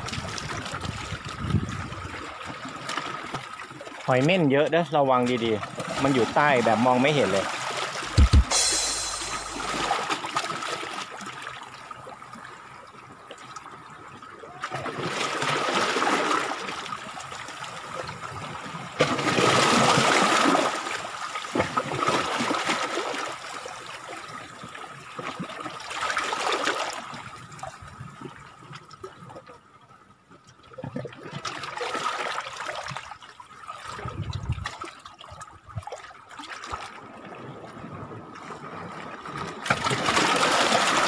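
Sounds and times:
seawater washing among rocks: 19.1 - 23.4, 39.6 - 41.0.

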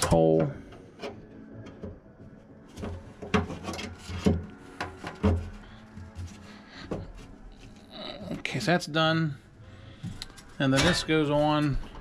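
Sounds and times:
wire rubbing and scraping: 2.7 - 8.4.

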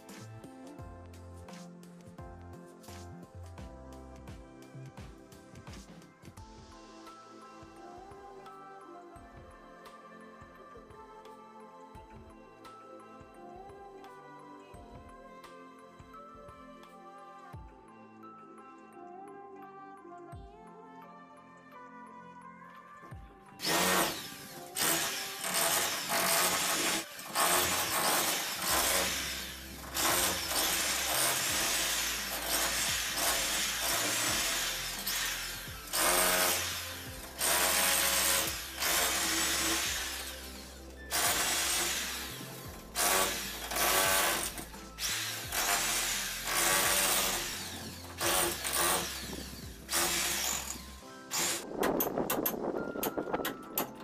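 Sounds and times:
background music with bass: 0.0 - 8.4, 27.5 - 54.0
wall cutter cutting brick: 23.6 - 51.6.

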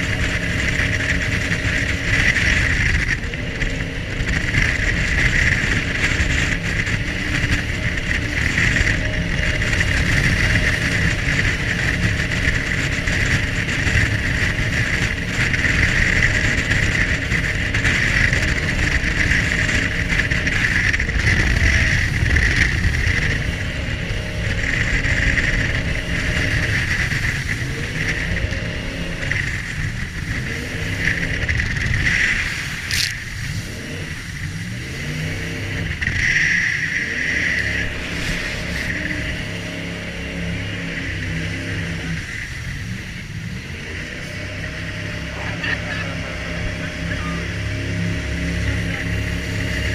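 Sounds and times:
boat engine rumble: 0.0 - 49.9
rush of water and air: 0.0 - 49.9.

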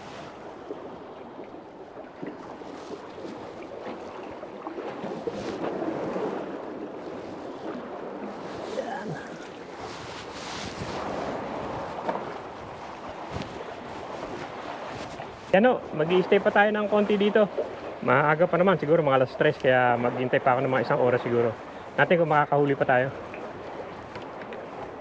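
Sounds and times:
wind noise on microphone: 0.0 - 16.4
sea water washing against pilings: 0.0 - 25.0.

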